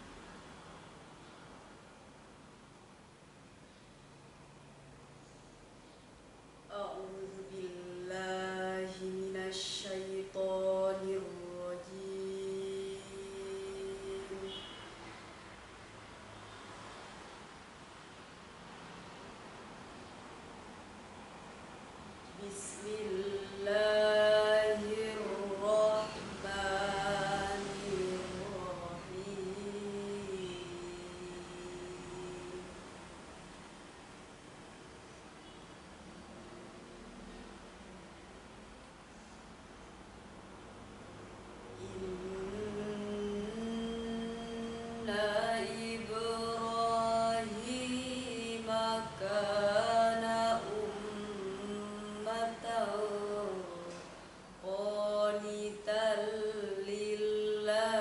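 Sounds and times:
faint hiss: 0.0s - 58.0s
girl reciting melodically: 6.7s - 14.8s, 22.4s - 32.8s, 41.8s - 54.0s, 54.6s - 58.0s.

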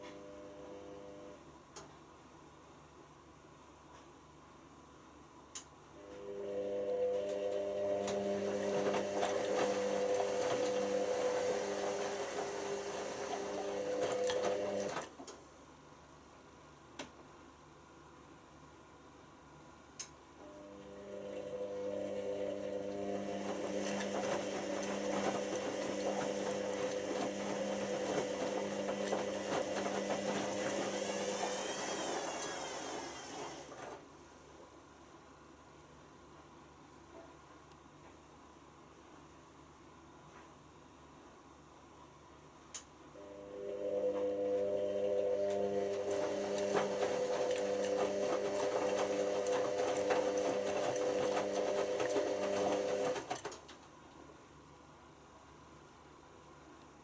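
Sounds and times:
washing machine motor humming: 0.0s - 1.4s, 6.0s - 15.0s, 20.4s - 34.0s, 43.2s - 53.6s.

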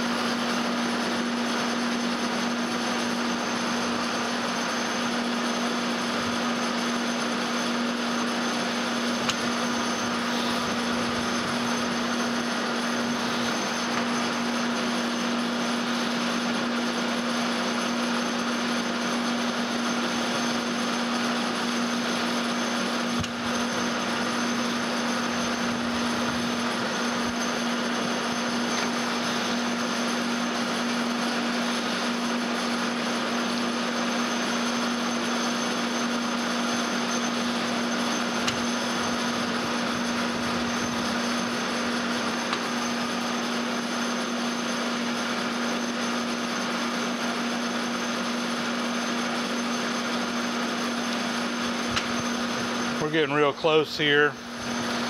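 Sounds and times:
metal lathe running: 0.0s - 55.0s.

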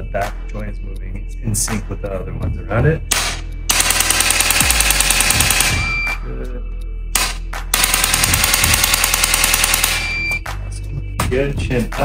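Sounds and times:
rapid mechanical clicking: 3.7s - 5.8s, 7.2s - 10.1s
short high beep: 5.8s - 6.2s, 9.9s - 10.5s.

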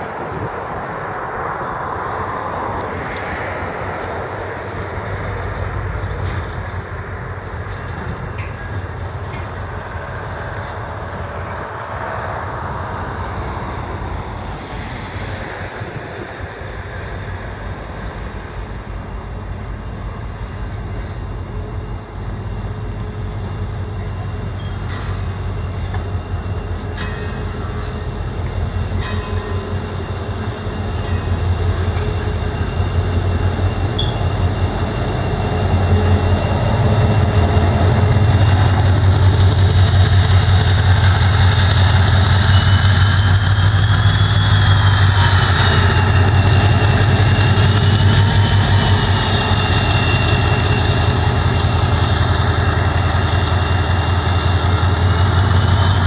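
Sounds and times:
diesel locomotive engine: 0.0s - 56.0s
wheel squeal: 27.2s - 56.0s.

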